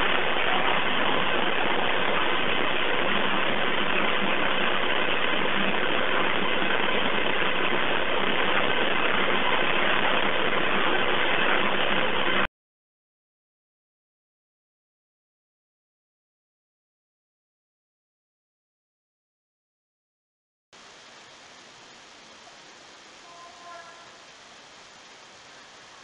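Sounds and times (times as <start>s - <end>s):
steady background hiss: 0.0s - 12.5s, 20.8s - 26.0s.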